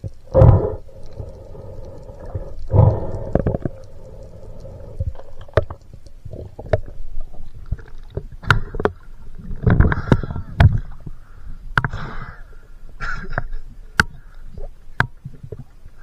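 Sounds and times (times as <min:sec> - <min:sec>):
water splashing: 0:00.0 - 0:11.2
muffled underwater rumbling: 0:00.0 - 0:16.0
underwater clicks and knocks: 0:02.2 - 0:04.2, 0:05.0 - 0:11.1, 0:11.7 - 0:12.0, 0:13.3 - 0:15.8.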